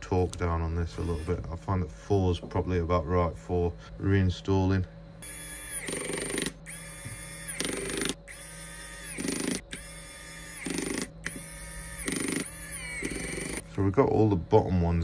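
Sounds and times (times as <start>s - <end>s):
electric screwdriver motor whining: 1.0s - 1.4s, 5.2s - 13.6s.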